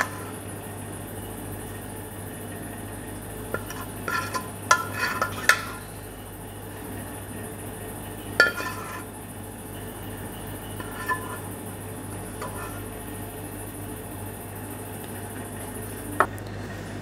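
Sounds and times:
ladle scraping a ceramic plate: 0.0s - 0.4s, 3.5s - 6.0s, 8.4s - 9.2s, 10.7s - 11.5s, 12.2s - 13.0s
steady low hum: 0.0s - 17.0s.

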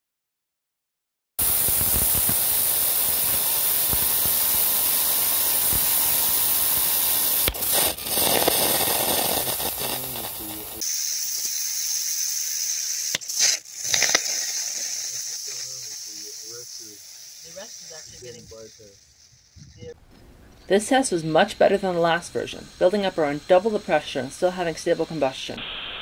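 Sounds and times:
rocket engine hissing: 1.4s - 20.0s, 20.7s - 26.0s
sharp pops: 1.4s - 20.7s.

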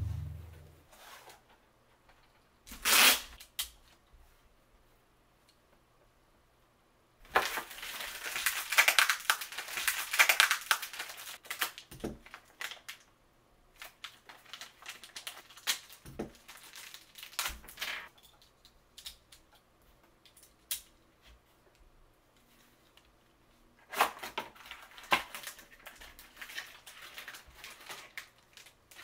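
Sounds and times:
cardboard tearing and crushing: 7.4s - 11.8s.

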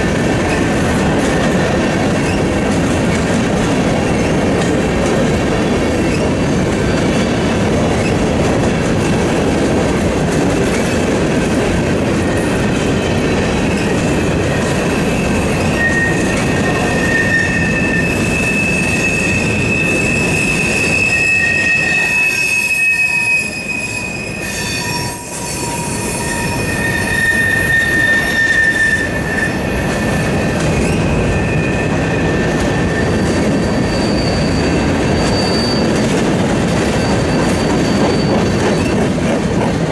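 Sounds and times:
train wheels rumbling on rail: 0.0s - 39.9s
high wheel squeal: 12.2s - 39.0s.

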